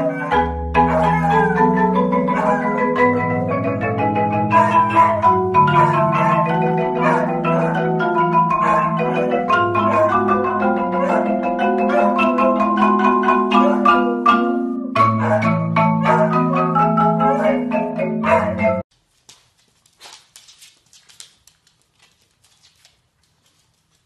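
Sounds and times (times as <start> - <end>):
marimba duet: 0.0 - 18.8.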